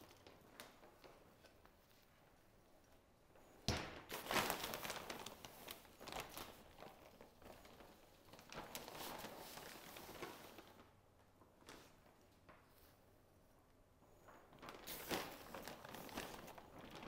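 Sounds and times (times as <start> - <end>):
plastic bag crinkling: 4.1 - 12.0, 14.2 - 17.0.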